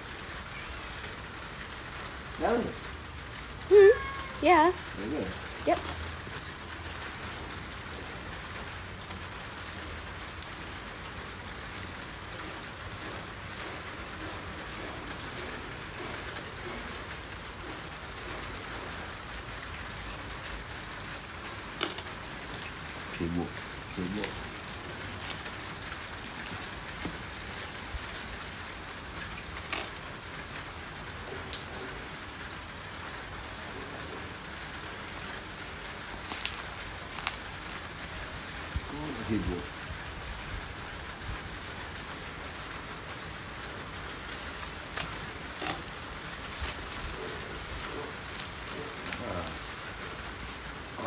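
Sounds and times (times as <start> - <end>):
steady hiss: 3.7 - 51.0
plastic wrap crinkling: 21.8 - 28.9, 36.0 - 39.4, 44.4 - 50.6
plastic wrapping pulled apart: 36.1 - 38.6, 44.8 - 50.5.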